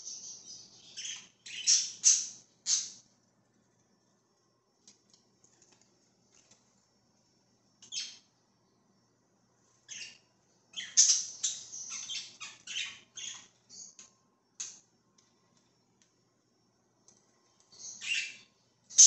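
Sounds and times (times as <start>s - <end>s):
budgerigars chirping and squawking: 0.1s - 3.0s, 10.8s - 13.5s, 17.8s - 18.4s.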